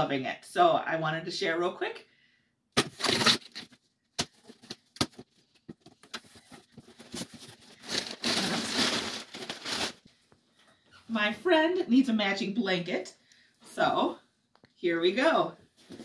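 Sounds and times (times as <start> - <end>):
packing tape ripping: 2.8 - 5.2, 7.0 - 10.0
packing paper rustling: 2.8 - 10.1.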